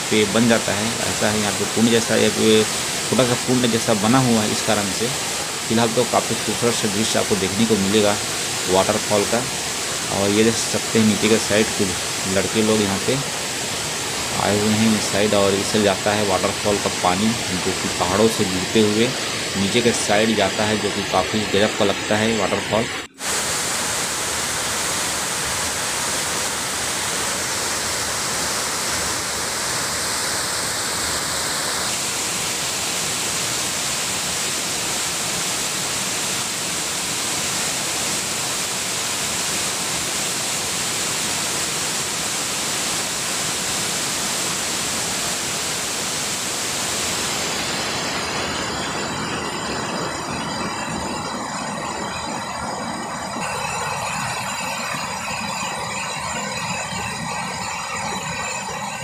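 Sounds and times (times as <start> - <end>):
waterfall splashing over rock: 0.0 - 20.6, 23.1 - 49.2.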